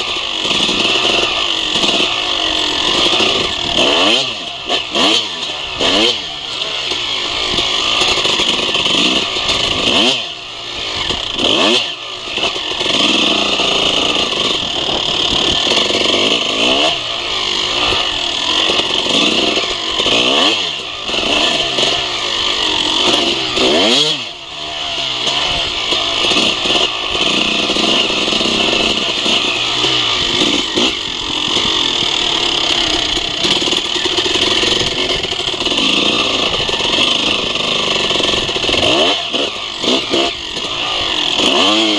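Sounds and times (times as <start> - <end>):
dirt bike engine revving: 0.0 - 41.9.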